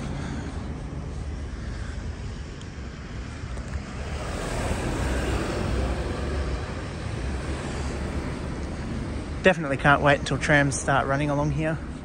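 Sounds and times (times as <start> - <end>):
car passing close by: 3.6 - 9.2.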